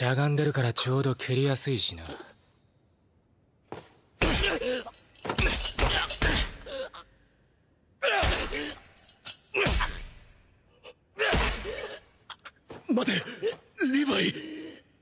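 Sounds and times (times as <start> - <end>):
man grunting and groaning: 4.2 - 7.1, 8.0 - 8.9, 9.5 - 10.1, 10.8 - 15.0.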